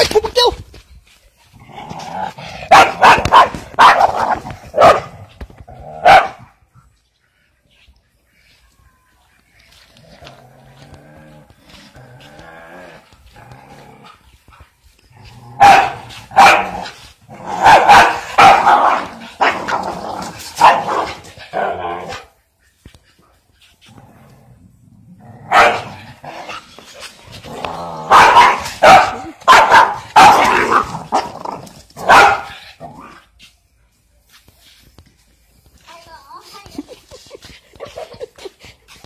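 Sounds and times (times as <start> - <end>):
dog barking: 2.7 - 5.1, 6.0 - 6.4, 15.6 - 16.9, 17.6 - 19.6, 20.6 - 21.2, 25.5 - 26.0, 28.1 - 31.3, 32.0 - 32.6.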